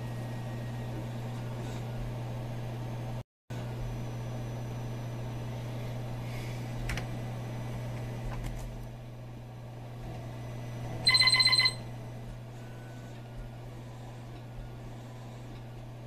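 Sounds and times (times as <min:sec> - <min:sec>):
computer low hum: 0:00.0 - 0:16.0
buzzy pulsing computer beep: 0:11.1 - 0:11.8.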